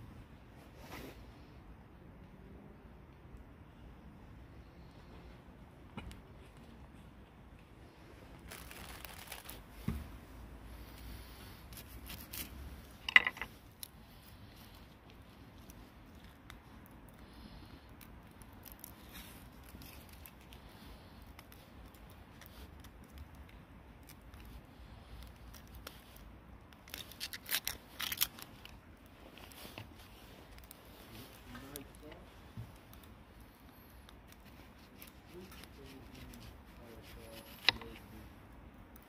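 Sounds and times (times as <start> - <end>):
onion skin tearing: 8.5 - 9.7, 11.5 - 38.0.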